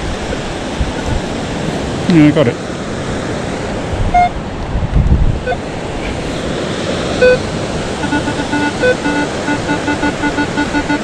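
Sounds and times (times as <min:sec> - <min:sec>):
surf: 0:00.0 - 0:11.0
wind: 0:00.0 - 0:11.0
metal detector beeping: 0:04.2 - 0:04.4, 0:05.4 - 0:05.6, 0:07.2 - 0:11.0.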